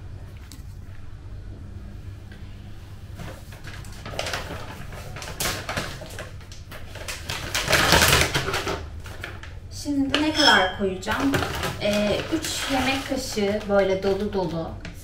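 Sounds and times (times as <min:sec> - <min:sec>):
pot and utensils clattering: 0:10.1 - 0:13.1.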